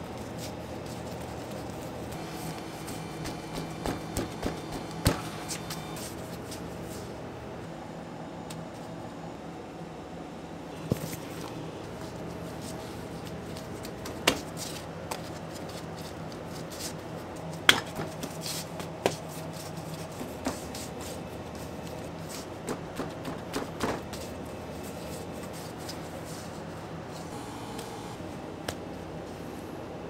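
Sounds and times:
dough rubbing on table: 0.0 - 7.1, 11.9 - 27.2
steady low hum: 0.0 - 30.0
dough taps and slaps: 3.2 - 5.3, 17.6 - 19.2, 22.6 - 24.2.

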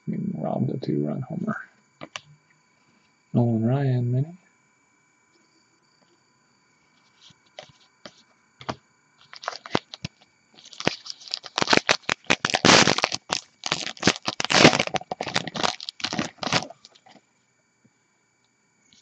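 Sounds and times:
foil wrapper crinkling and tearing: 9.2 - 17.1.

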